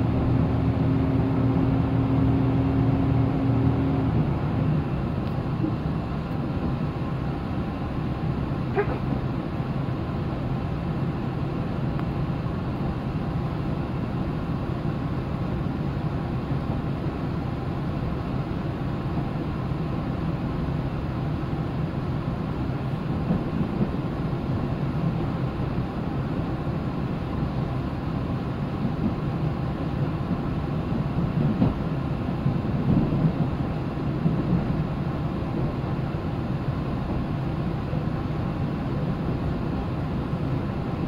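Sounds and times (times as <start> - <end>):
train engine hum: 0.0 - 41.0
wheels rolling on rail: 0.0 - 41.0.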